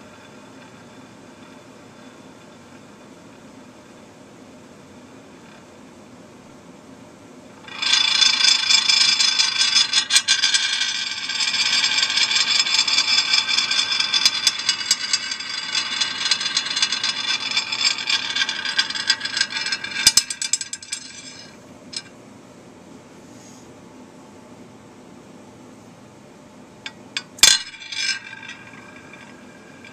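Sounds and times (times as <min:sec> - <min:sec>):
glass spinning top rattling on plate: 0:07.7 - 0:22.1, 0:26.9 - 0:29.9.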